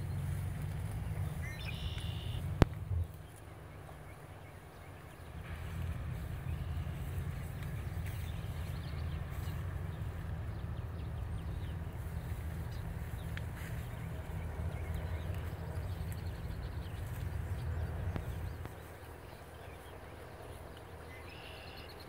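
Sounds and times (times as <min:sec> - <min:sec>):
low wind rumble on microphone: 0:00.0 - 0:21.1
faint bird chirps: 0:01.2 - 0:02.5, 0:18.2 - 0:22.0.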